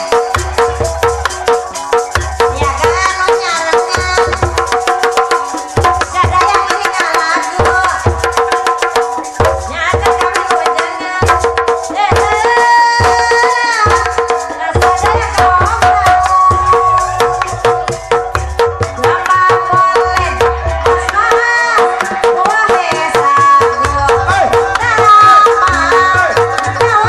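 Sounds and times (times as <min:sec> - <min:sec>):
deep hand-drum strokes: 0:14.9 - 0:27.0.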